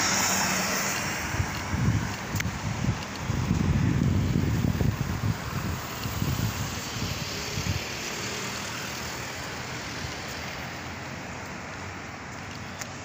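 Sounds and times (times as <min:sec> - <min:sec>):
wind buffeting microphone: 0:00.0 - 0:08.0
street traffic: 0:00.0 - 0:13.0.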